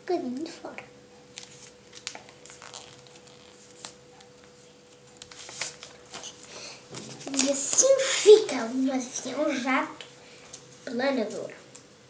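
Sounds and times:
faint steady hum: 0.0 - 12.0
paper rustling on countertop: 1.4 - 8.9.

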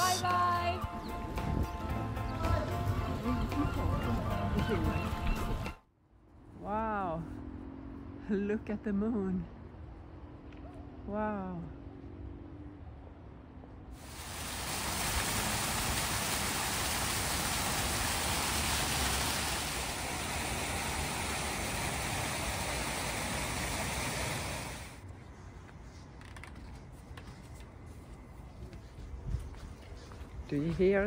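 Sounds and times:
fountain water rushing: 14.0 - 25.0.

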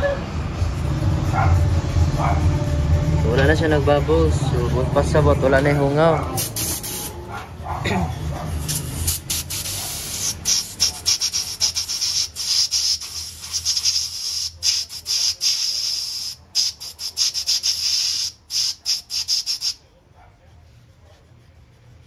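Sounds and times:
compressed-air blow gun hissing: 6.3 - 7.2, 8.6 - 19.8.

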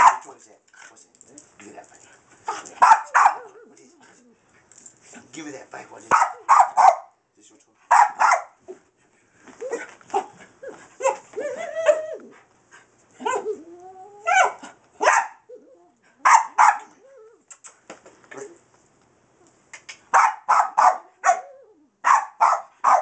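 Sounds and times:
small dog barking: 0.0 - 0.3, 2.5 - 3.6, 6.1 - 7.2, 7.9 - 8.6, 11.0 - 12.0, 13.2 - 13.6, 14.3 - 15.5, 16.2 - 17.0, 20.1 - 23.0
dog whining and whimpering: 9.6 - 12.4, 13.2 - 14.5, 15.4 - 16.0, 16.9 - 17.5.

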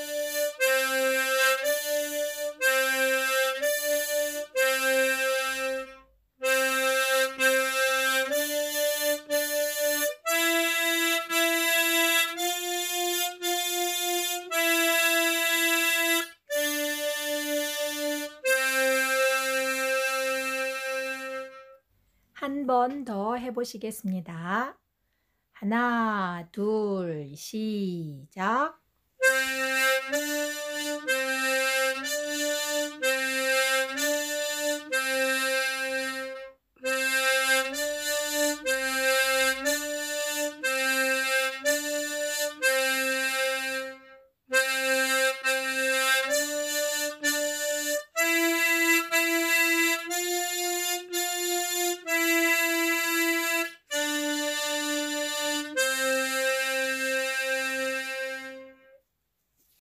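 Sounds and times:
harmonica playing a tune: 0.0 - 21.8, 29.2 - 59.0.

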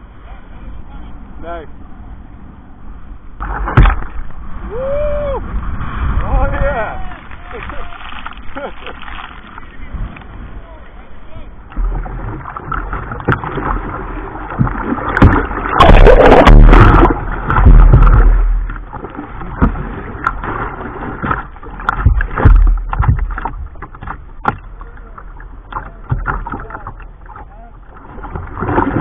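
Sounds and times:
low rumble: 0.0 - 29.0
sharp water slaps: 3.4 - 4.2, 14.5 - 24.7
water splashing over kayak: 3.4 - 29.0.

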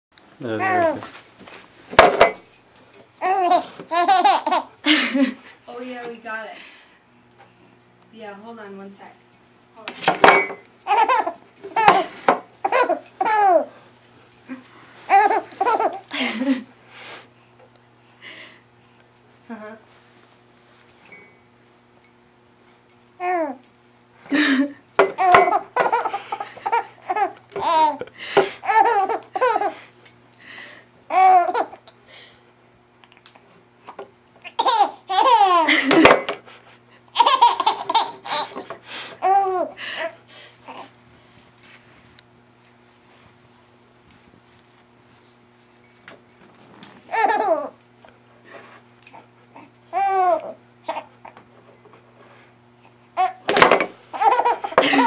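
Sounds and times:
baby laughing: 3.2 - 4.7, 10.9 - 13.7, 15.1 - 16.6, 25.2 - 29.8, 31.1 - 31.9, 34.4 - 36.2, 37.1 - 40.9, 47.1 - 47.8, 49.9 - 51.1, 53.2 - 53.5, 54.1 - 55.0.

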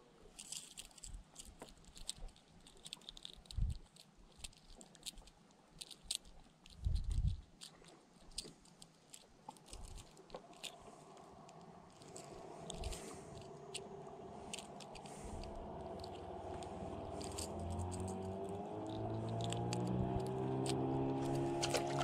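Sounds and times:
engine hum: 9.6 - 22.0.

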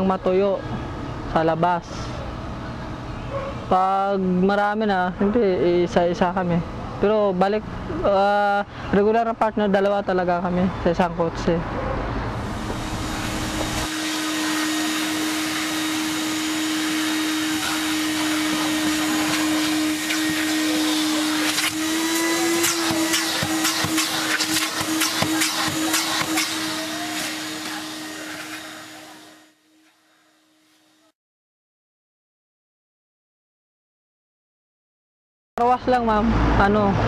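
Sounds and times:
vacuum cleaner running: 12.2 - 31.1.

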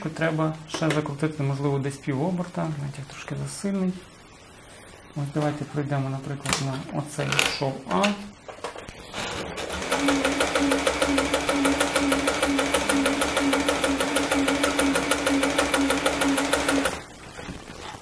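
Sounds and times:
sewing machine running: 9.1 - 17.1.

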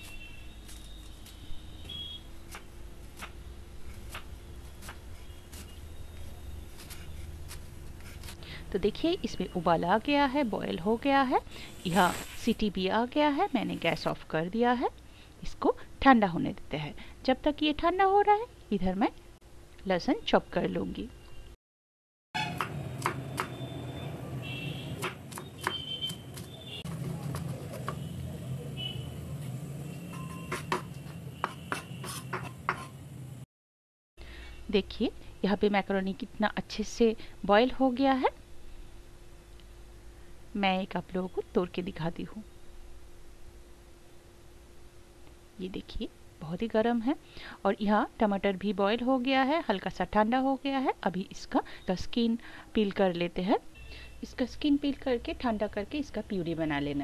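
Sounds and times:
faint steady hum: 34.2 - 57.0.

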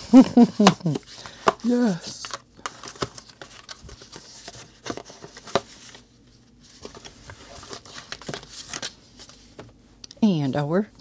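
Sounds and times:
paper rustling: 0.0 - 9.6.

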